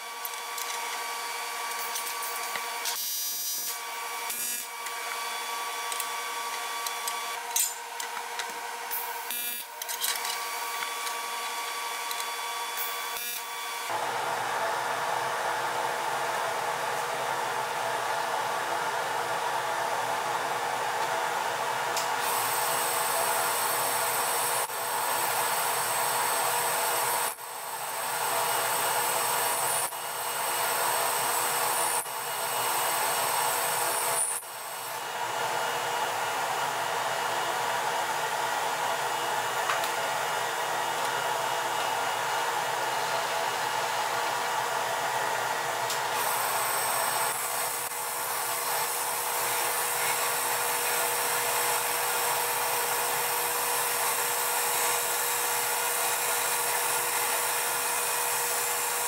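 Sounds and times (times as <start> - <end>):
metal lathe cutting: 46.1 - 59.0.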